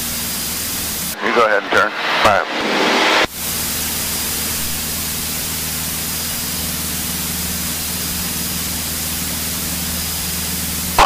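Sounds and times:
airplane engine and propeller drone: 0.0s - 11.0s
airflow rush: 0.4s - 6.3s.

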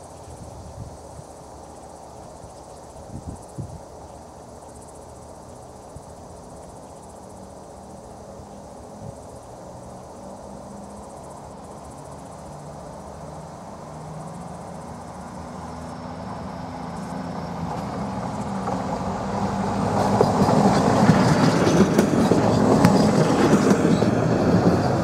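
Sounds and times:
diesel railcar engine hum: 0.0s - 25.0s
wheels clicking over rail joints: 16.4s - 25.0s.

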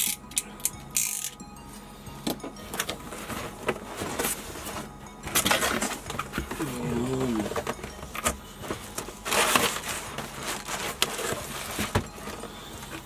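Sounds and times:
background music: 0.0s - 13.0s.

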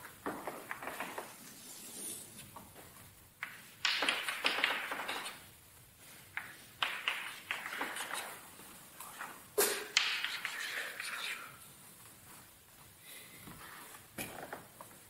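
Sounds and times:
chalk tapping and scraping on blackboard: 3.4s - 5.5s, 6.2s - 11.6s.

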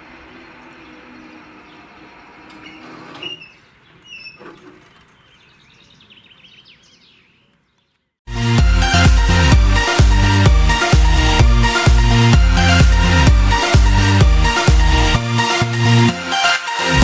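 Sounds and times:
birds chirping: 0.0s - 8.2s.

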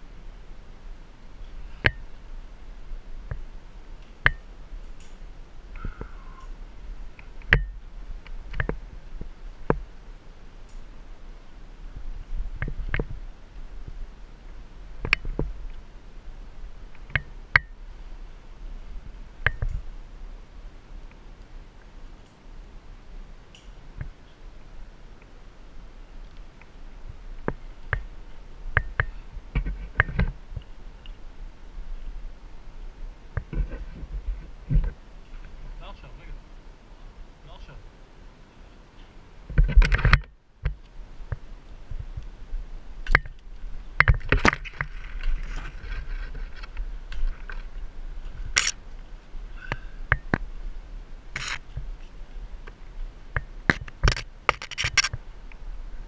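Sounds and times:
faint short squeak: 5.8s - 6.6s
rope gear clicks and knocks: 39.0s - 41.4s, 53.4s - 55.2s.

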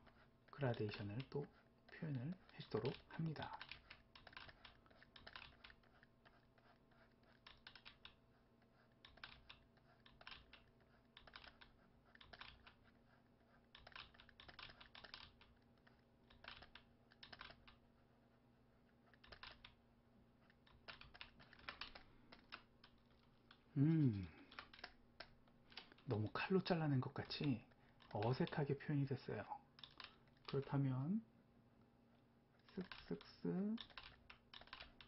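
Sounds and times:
keyboard keys clicking: 2.8s - 6.0s, 7.5s - 8.2s, 9.1s - 12.8s, 13.8s - 15.6s, 16.3s - 17.8s, 19.2s - 19.8s, 20.7s - 23.0s, 32.7s - 35.0s.

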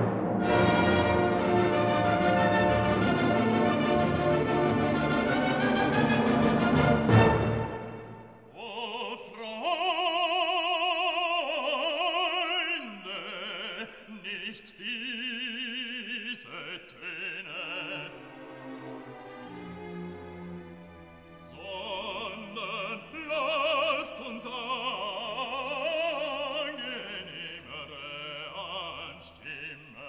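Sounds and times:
orchestral chord: 0.0s - 8.4s
operatic voice singing: 8.5s - 18.5s, 21.4s - 30.0s.

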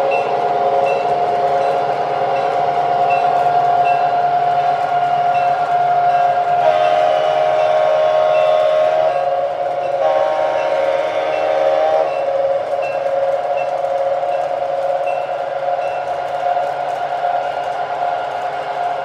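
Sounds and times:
train running: 0.0s - 19.0s
locomotive horn chords: 6.0s - 12.4s.

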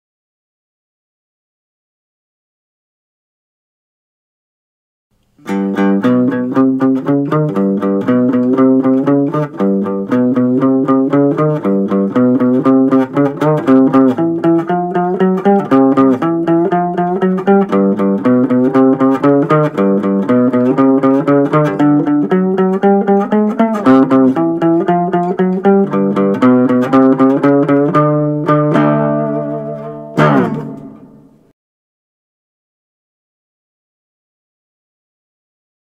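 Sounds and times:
slide guitar blues riff: 5.4s - 31.4s.

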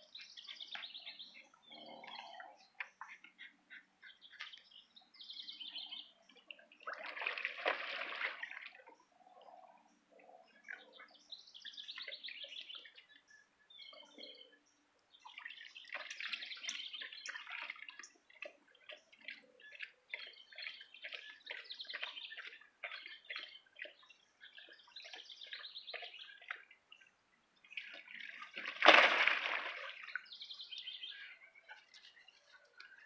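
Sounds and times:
songbirds chirping: 0.0s - 33.0s
dog splashing in pool water: 6.9s - 8.7s, 28.2s - 30.1s.

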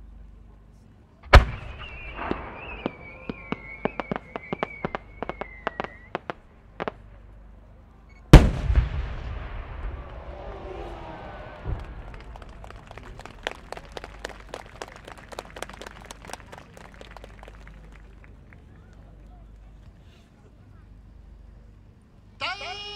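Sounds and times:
firework boom echoing: 1.3s - 7.0s, 8.3s - 14.6s
sharp firework pops: 1.3s - 7.0s, 8.3s - 13.8s
firework whistle dropping in pitch: 1.4s - 6.4s.

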